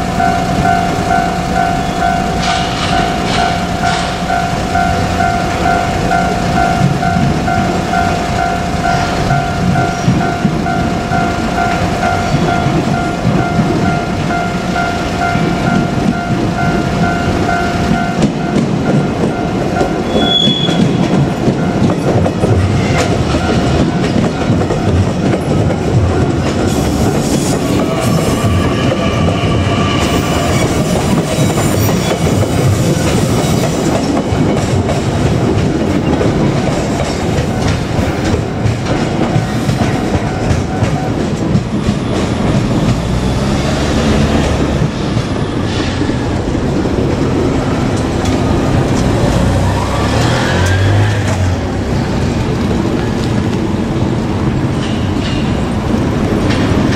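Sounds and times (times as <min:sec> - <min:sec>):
crossing warning bell ringing: 0:00.0 - 0:53.3
train wheels clattering: 0:00.0 - 0:56.9
high wheel squeal: 0:20.0 - 0:21.1, 0:26.6 - 0:34.2.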